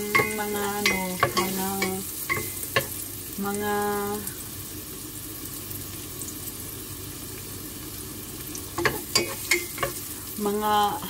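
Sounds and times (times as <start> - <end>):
wooden spoon knocking pot: 0.0 - 3.0, 8.8 - 10.0
food sizzling in oil: 0.0 - 11.0.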